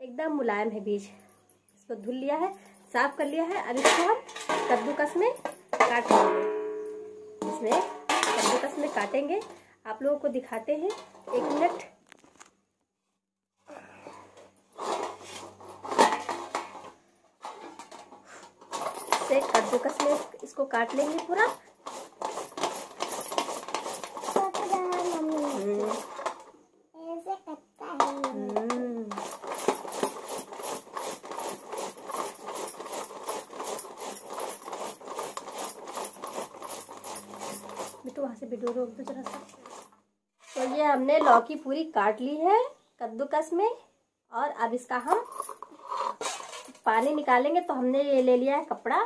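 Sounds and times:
gourd scraping on metal grater: 0:19.1 - 0:26.2, 0:29.1 - 0:38.2, 0:39.1 - 0:39.8, 0:45.6 - 0:46.8.

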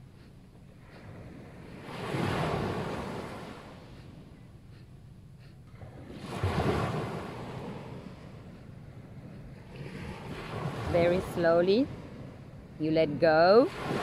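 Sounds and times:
surf breaking on beach: 0:01.8 - 0:03.6, 0:06.1 - 0:08.0.

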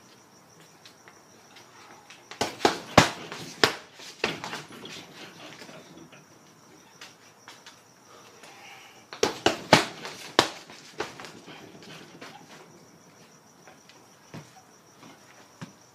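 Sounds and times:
punches hitting heavy bag: 0:02.4 - 0:04.7, 0:09.2 - 0:11.4.

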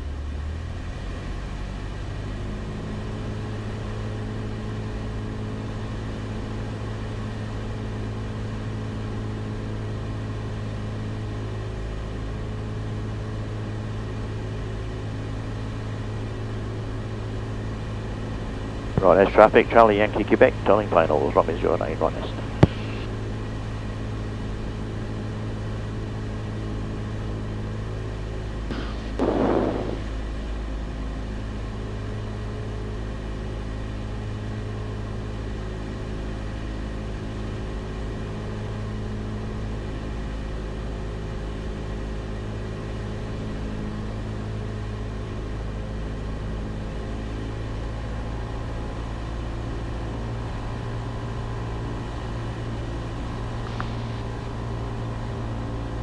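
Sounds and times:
propeller plane engine drone: 0:00.0 - 0:56.0
brief loud sound: 0:28.7 - 0:30.2.

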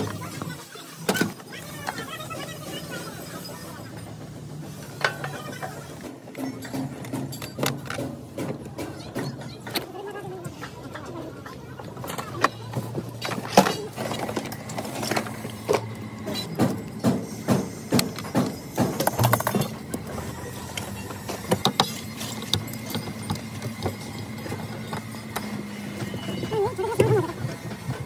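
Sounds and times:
hand tools clicking and knocking: 0:05.0 - 0:10.7, 0:11.8 - 0:28.0.

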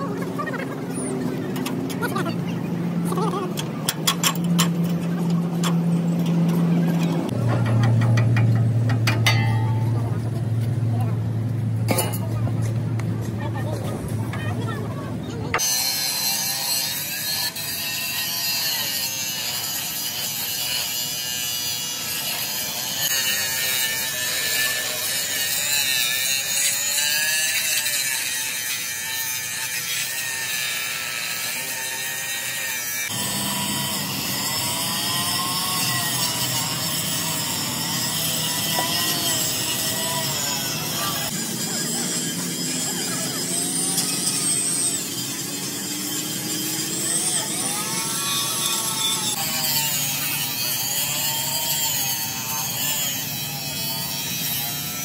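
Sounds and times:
power tool whining on metal: 0:15.5 - 0:55.0.

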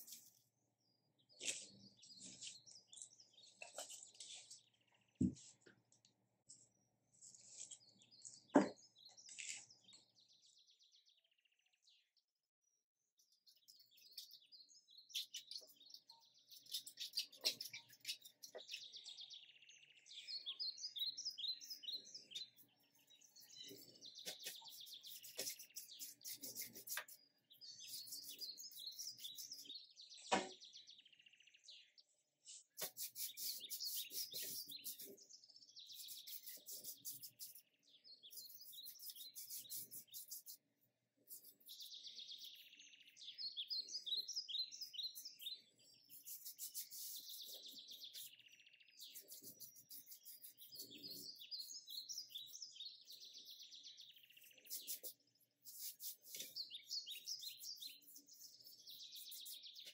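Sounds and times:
small birds chirping: 0:00.0 - 0:59.9.

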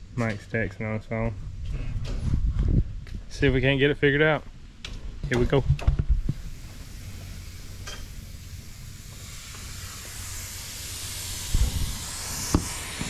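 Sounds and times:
compressed air hissing: 0:06.3 - 0:13.0.

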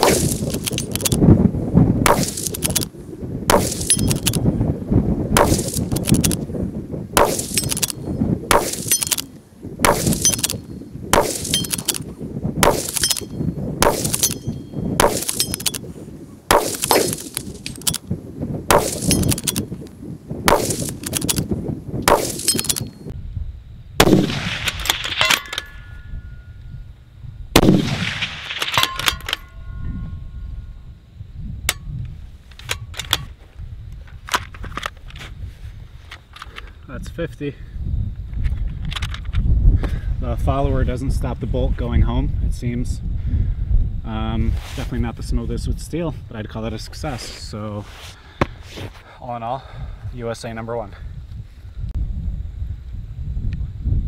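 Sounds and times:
rifle shots: 0:00.0 - 0:01.2, 0:02.0 - 0:02.9, 0:03.5 - 0:04.4, 0:05.4 - 0:06.4, 0:07.2 - 0:12.0, 0:12.6 - 0:14.4, 0:15.0 - 0:15.8, 0:16.5 - 0:18.0, 0:18.7 - 0:19.6, 0:20.5 - 0:21.4, 0:22.1 - 0:22.9, 0:24.0 - 0:25.7, 0:27.6 - 0:29.4
faint metallic ringing: 0:14.2 - 0:15.6, 0:25.2 - 0:27.0, 0:28.8 - 0:32.0.

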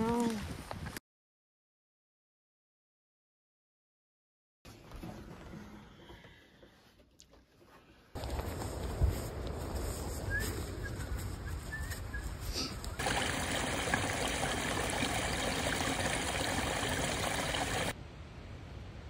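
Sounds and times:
stream splashing over rocks: 0:13.0 - 0:18.0.

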